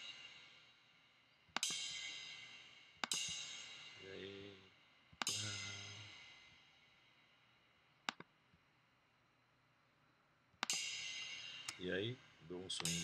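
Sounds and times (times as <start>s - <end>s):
cymbal hits ringing: 5.3s - 6.6s.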